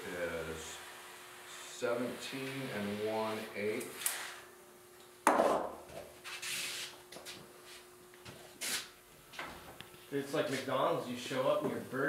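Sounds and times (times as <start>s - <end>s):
faint steady hum: 0.0s - 12.0s
rubbing and scraping of wood: 5.9s - 7.9s.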